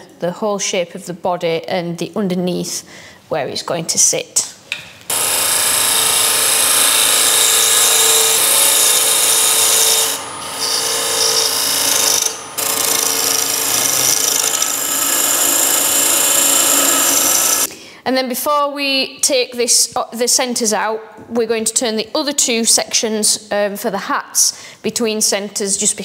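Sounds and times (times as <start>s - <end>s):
lathe tool scraping wood: 5.1s - 17.7s.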